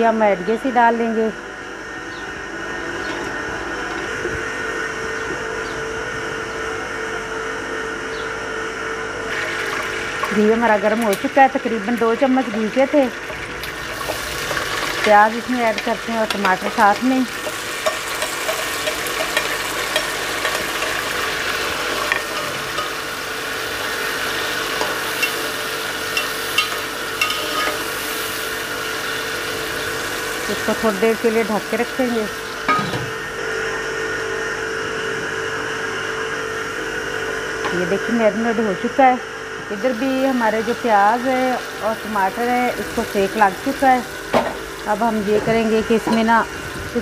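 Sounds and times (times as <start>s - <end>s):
faint hum: 0.0s - 47.0s
stove rushing noise: 1.3s - 5.4s, 6.0s - 47.0s
onion and tomato sizzling: 9.3s - 33.4s, 39.7s - 47.0s.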